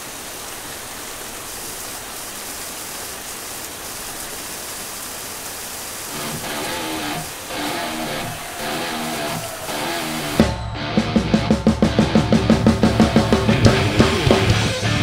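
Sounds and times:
rain pouring: 0:00.0 - 0:15.0
loud rock music: 0:06.2 - 0:15.0.

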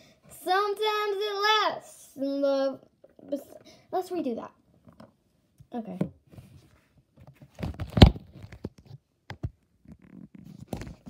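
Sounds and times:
phone handling rustles: 0:07.2 - 0:09.5.

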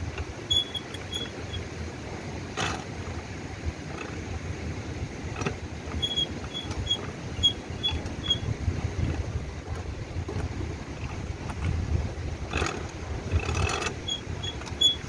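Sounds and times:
roller press rumbling: 0:00.0 - 0:15.0
short high squeaks: 0:00.4 - 0:01.7, 0:05.9 - 0:08.6, 0:13.4 - 0:15.0.

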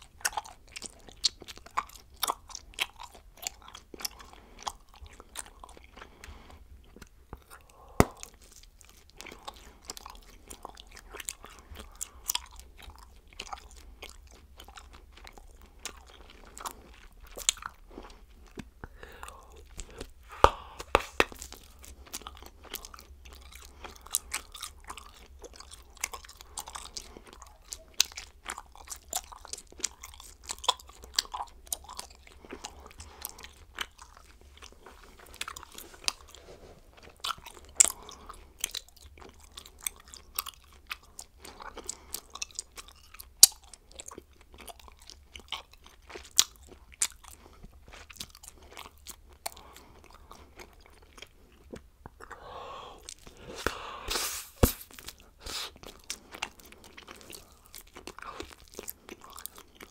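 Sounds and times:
gum chewing smacks and clicks: 0:00.0 - 0:59.9
loud gum snaps: 0:08.0 - 0:08.4, 0:20.4 - 0:21.6.

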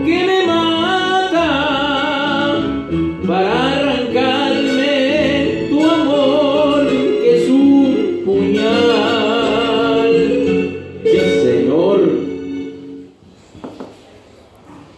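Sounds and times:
man singing into microphone: 0:00.0 - 0:11.9
guitar accompaniment: 0:00.0 - 0:13.2.

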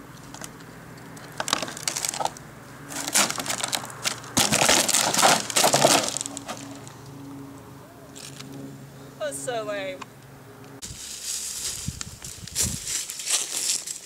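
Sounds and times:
footsteps crunching on gritty rock: 0:10.8 - 0:14.0.

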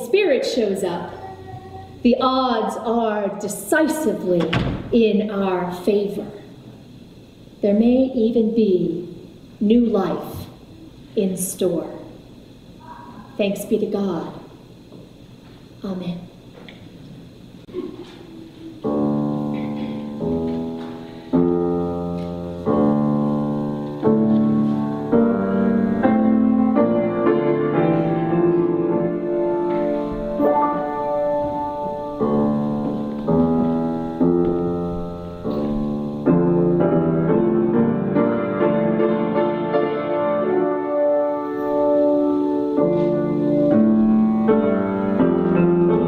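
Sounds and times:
piano playing slow chords: 0:17.6 - 0:46.0.

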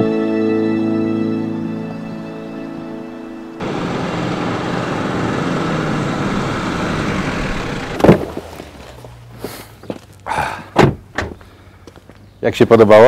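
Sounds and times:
car engine running: 0:03.6 - 0:10.3
car door shutting with thud: 0:08.0 - 0:08.6, 0:10.7 - 0:11.4
handling noises: 0:08.0 - 0:12.2.

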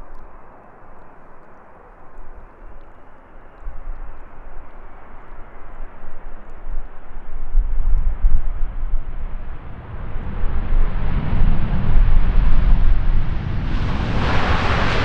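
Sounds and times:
low rumble: 0:03.5 - 0:15.0
jet engines rushing: 0:09.8 - 0:15.0.

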